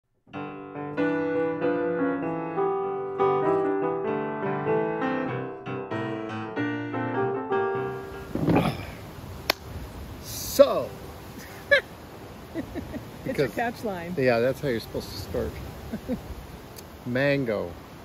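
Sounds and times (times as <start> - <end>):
piano melody: 0.3 - 8.9.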